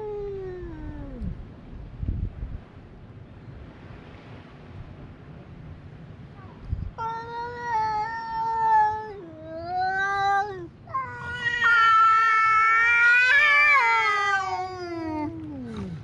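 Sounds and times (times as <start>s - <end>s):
cats yowling: 7.0s - 16.0s.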